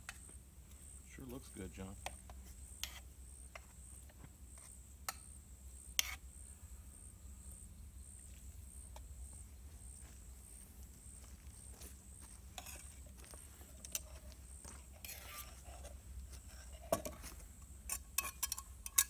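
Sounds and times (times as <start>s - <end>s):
insect chirping: 0.0s - 19.0s
spoon scraping metal pot: 14.9s - 16.9s, 17.9s - 19.0s.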